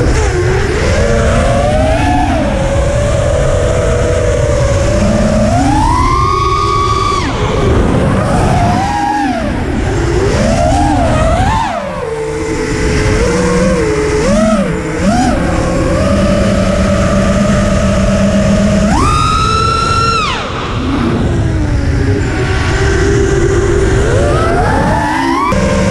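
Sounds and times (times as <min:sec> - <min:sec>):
drone motors whining: 0:00.0 - 0:25.9.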